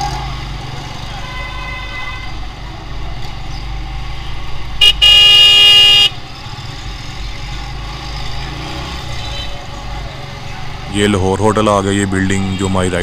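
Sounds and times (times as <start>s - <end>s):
city traffic: 0.0s - 13.0s
motorcycle engine: 0.0s - 13.0s
vehicle horn blast: 4.8s - 6.2s.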